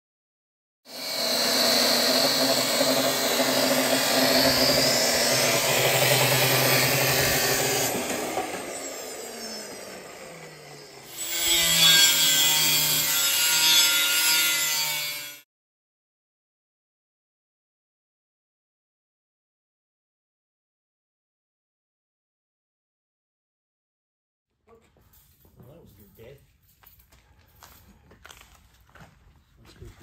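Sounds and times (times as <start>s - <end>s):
angle grinder cutting steel: 0.9s - 15.4s.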